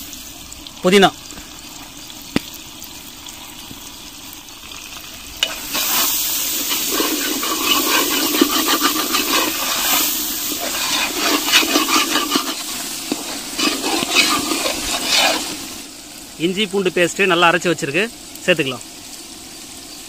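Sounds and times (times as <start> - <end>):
food sizzling: 0.0 - 20.0
metal ladle scraping a pot: 5.4 - 15.8.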